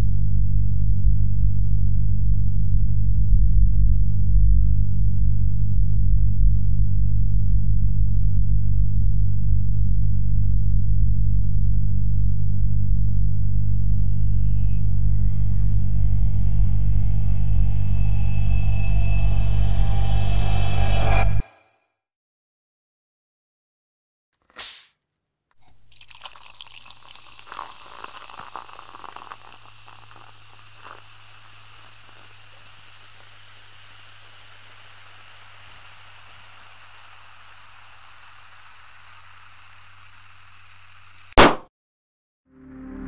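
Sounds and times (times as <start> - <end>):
balloon popping: 24.5 - 24.9, 41.4 - 41.7
quick swish: 24.5 - 24.9
long steady hiss with crackles: 25.6 - 41.4.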